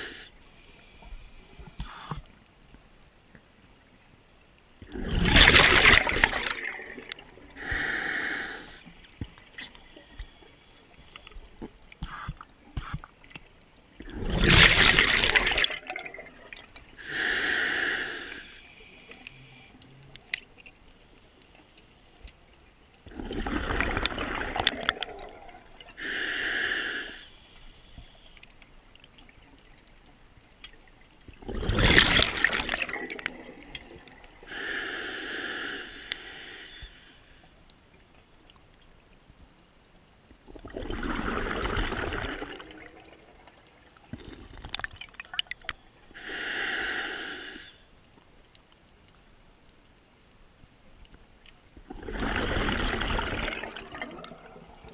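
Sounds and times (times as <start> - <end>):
regulator inhale hiss: 0.0 - 2.4, 7.5 - 9.0, 17.0 - 19.9, 25.9 - 28.6, 34.3 - 37.5, 46.1 - 47.9
exhaled bubbles rushing: 4.8 - 7.6, 14.0 - 16.8, 23.1 - 25.8, 31.4 - 34.4, 40.5 - 43.6, 51.8 - 54.9.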